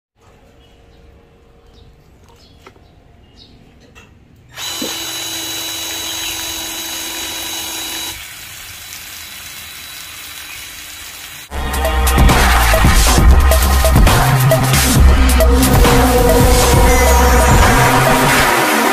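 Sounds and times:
cordless drill whining: 4.5 - 8.2
electronic music with heavy beat: 11.5 - 18.9.

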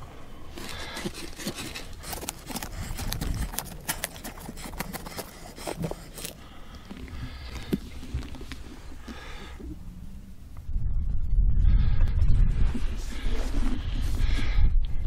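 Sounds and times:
knife sawing through pumpkin: 0.6 - 6.5.

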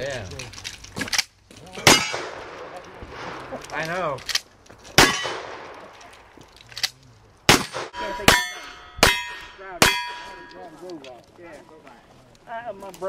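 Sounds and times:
handgun shots: 5.0 - 5.8, 7.5 - 10.4
steel target plate ringing: 7.9 - 10.7.

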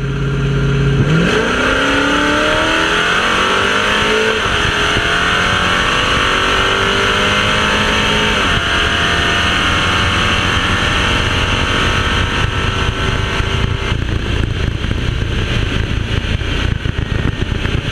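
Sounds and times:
car engine at full throttle: 0.0 - 17.9
wind and road rumble: 0.0 - 17.9.

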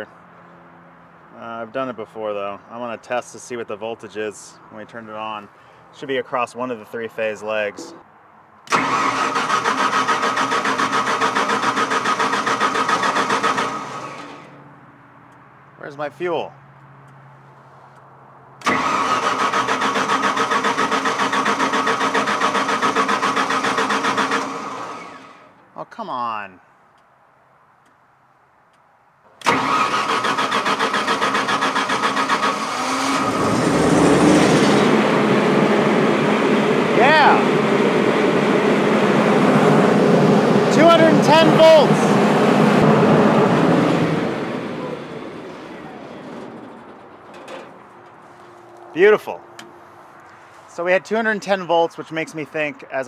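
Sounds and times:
generator engine cranking: 8.7 - 14.5, 18.6 - 25.6, 29.4 - 48.3
generator engine running: 8.7 - 14.5, 18.6 - 25.6, 29.4 - 48.5
starter whine: 8.7 - 14.5, 18.6 - 25.6, 29.4 - 48.5.

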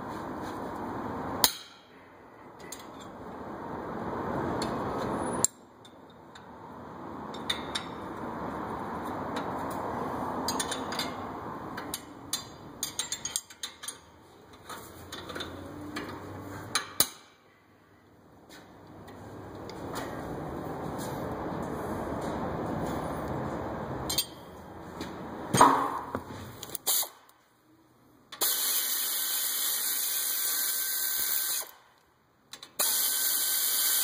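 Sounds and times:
wrench clanking on metal: 10.5 - 11.2, 11.8 - 14.1, 24.1 - 24.4.

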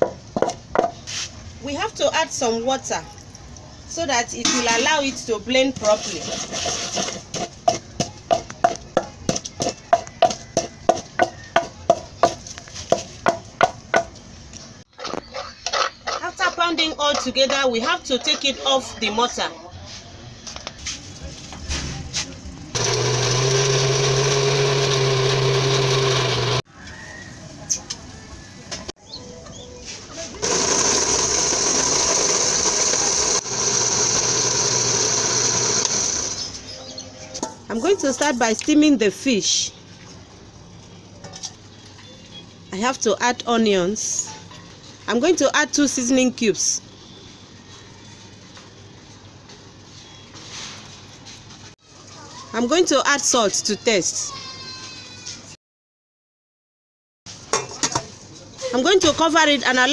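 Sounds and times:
pestle pounding in wooden mortar: 0.0 - 1.0, 6.3 - 14.2
blender motor running: 22.8 - 26.6, 30.4 - 36.6.

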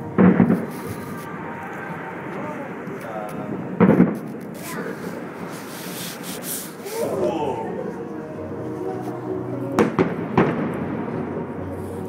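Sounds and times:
firework bangs: 0.0 - 6.8, 9.8 - 11.7
people's voices: 0.0 - 12.0.

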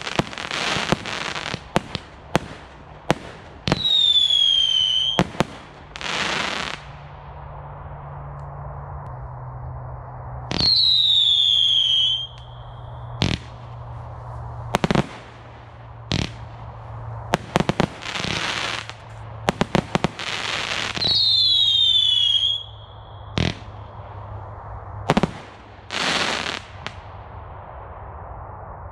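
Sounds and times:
firework bangs: 0.0 - 7.6, 10.5 - 24.4, 25.0 - 28.1
crackling hiss: 0.0 - 28.9
firework whistles falling in pitch: 3.7 - 5.2, 10.5 - 13.4, 20.3 - 23.6.

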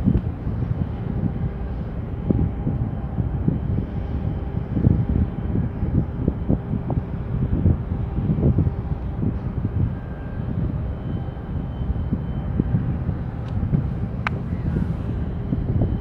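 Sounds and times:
faint ship engine hum: 0.0 - 16.0
wind buffeting microphone: 0.0 - 16.0.

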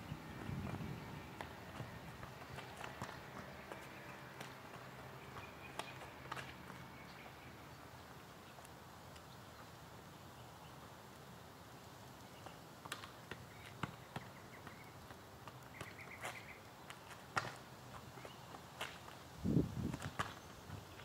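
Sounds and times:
outdoor background noise: 0.0 - 21.0
soccer ball taps on asphalt: 0.1 - 7.4, 12.4 - 19.2, 19.8 - 21.0.

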